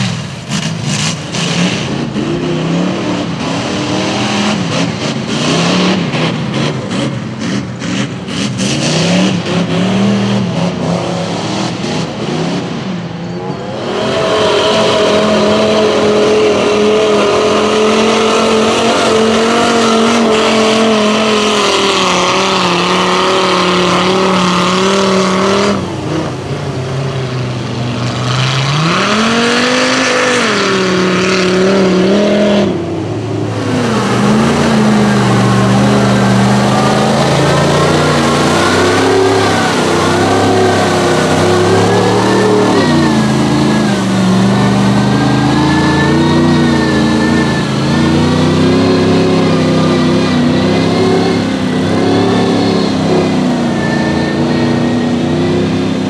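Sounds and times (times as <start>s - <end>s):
truck engines revving: 0.0s - 56.0s.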